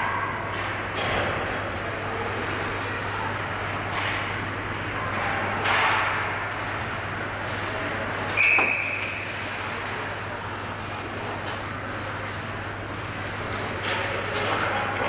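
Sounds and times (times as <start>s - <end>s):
ice rink hum and noise: 0.0s - 15.0s
referee's whistle blast: 8.4s - 9.0s.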